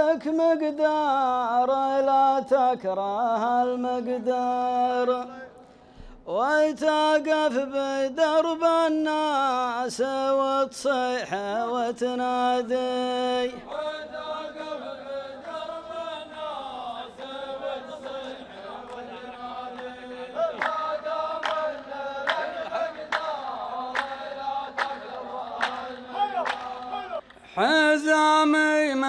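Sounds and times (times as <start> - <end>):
male chorus chanting in unison: 0.0 - 29.0
hands clapping on a slow beat: 18.0 - 27.5.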